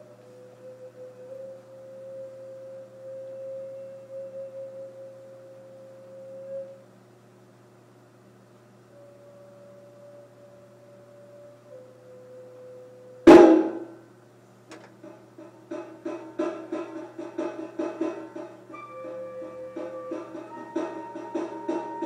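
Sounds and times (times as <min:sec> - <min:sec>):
flute holding long note: 0:00.0 - 0:06.9, 0:08.9 - 0:14.0, 0:17.2 - 0:22.0.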